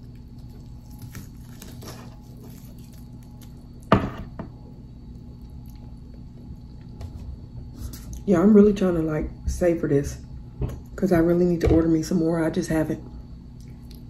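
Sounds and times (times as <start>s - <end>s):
ribs pulled apart and eaten: 0.0s - 3.9s.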